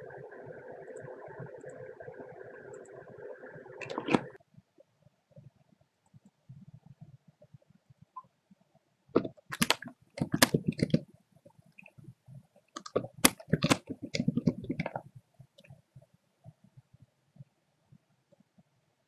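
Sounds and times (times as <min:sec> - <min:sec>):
keyboard typing: 0:03.8 - 0:04.4, 0:09.2 - 0:11.0, 0:12.7 - 0:15.0.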